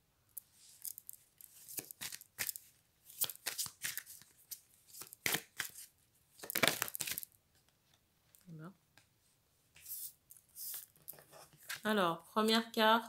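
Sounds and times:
cards being shuffled by hand: 0.7s - 7.2s.

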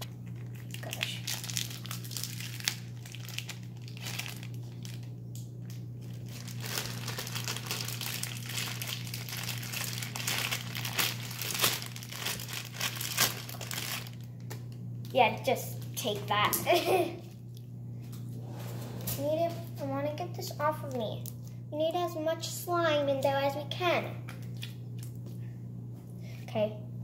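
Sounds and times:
plastic bag crinkling: 0.0s - 15.2s.

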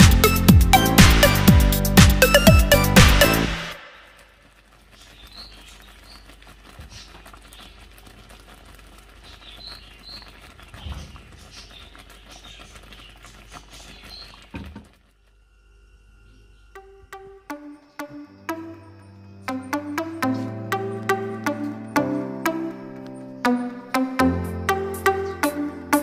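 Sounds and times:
sauce bubbling in a pan: 4.4s - 15.2s.

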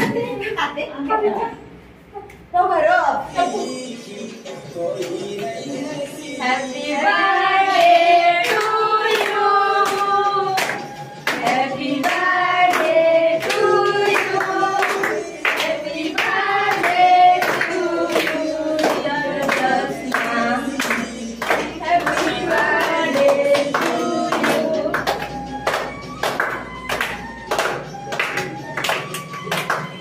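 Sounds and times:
girls and women singing: 5.3s - 25.3s
clapping in time: 18.8s - 30.0s.

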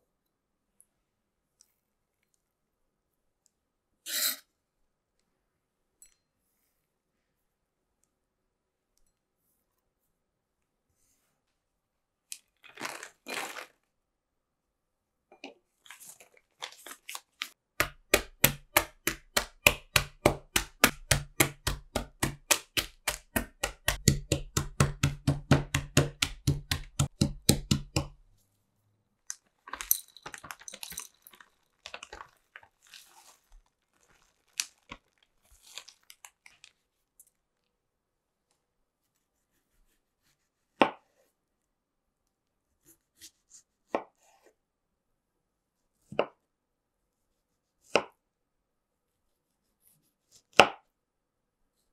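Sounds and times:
plastic bag crinkling: 12.5s - 13.9s, 15.8s - 17.6s, 29.4s - 36.8s
nuts rustling into bag: 12.6s - 13.9s, 29.6s - 36.8s
knife handle knocking on nuts: 17.8s - 28.2s.

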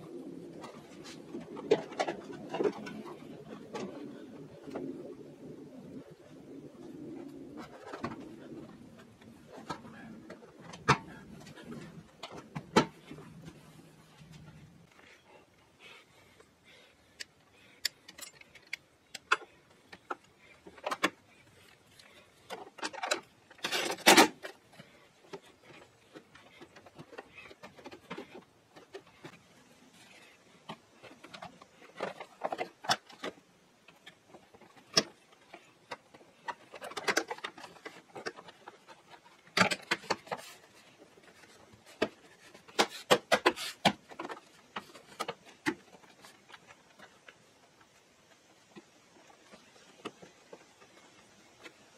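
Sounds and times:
plastic and metal parts clicking: 17.2s - 51.9s.

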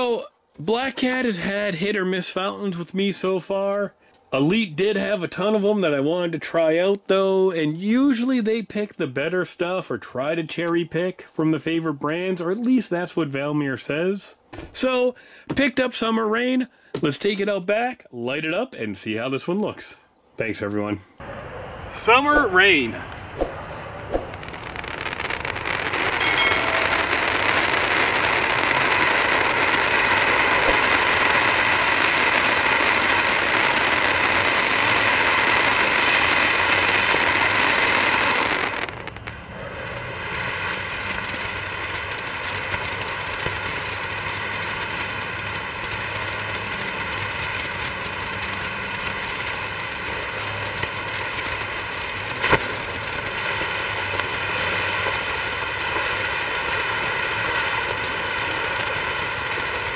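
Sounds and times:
firework fountain hissing: 21.2s - 59.9s
sharp firework pop: 23.4s - 25.4s, 26.0s - 28.8s, 30.2s - 31.8s, 52.4s - 52.9s.

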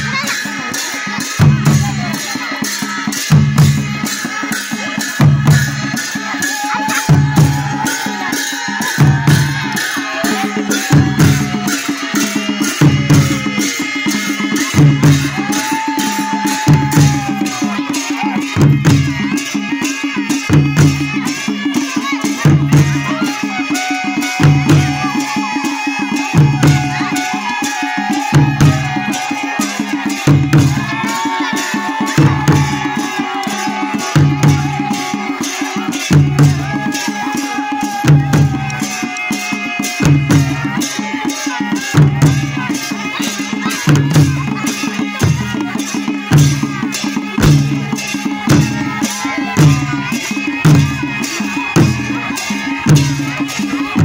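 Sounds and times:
rapid cymbal clashes: 0.0s - 54.0s
reed pipe melody: 3.7s - 44.2s.

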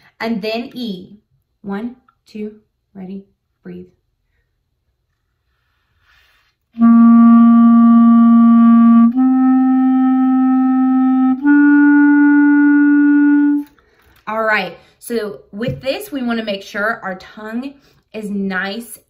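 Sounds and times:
clarinet long tones: 6.8s - 13.8s.

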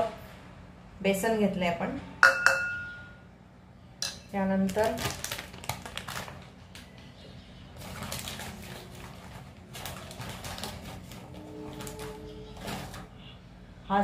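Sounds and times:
rustling handling noise: 4.6s - 13.2s.

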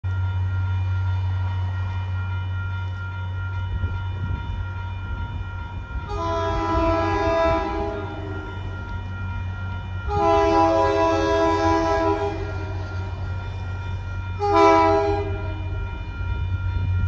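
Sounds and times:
locomotive engine rumble: 0.0s - 17.0s
train horn chord: 6.0s - 9.0s, 9.7s - 13.4s, 14.4s - 16.1s.

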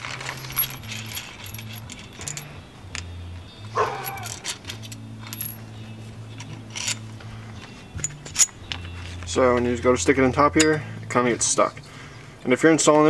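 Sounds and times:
metal parts clinking: 0.0s - 10.8s
dog barking: 3.8s - 4.2s.

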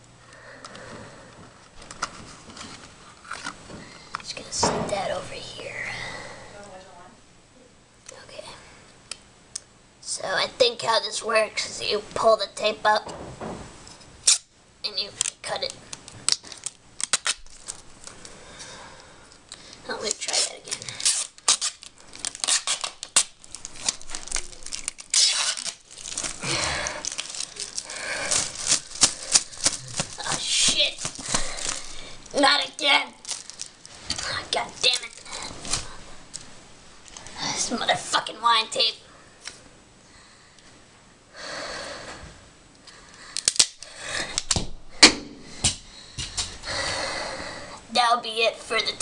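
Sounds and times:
tape crinkling: 14.2s - 14.5s, 15.1s - 18.3s, 19.4s - 37.4s, 43.4s - 44.6s
tape tearing rasp: 14.2s - 14.5s, 20.2s - 26.4s
tape crackling off roll: 15.2s - 18.3s, 20.1s - 37.3s
sharp clicks and snaps: 42.8s - 44.6s.

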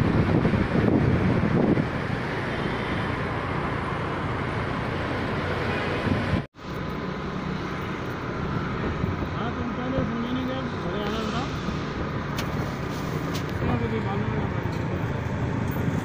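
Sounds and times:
wind on microphone: 0.0s - 2.4s, 5.3s - 6.5s
road and traffic noise: 0.0s - 16.0s.

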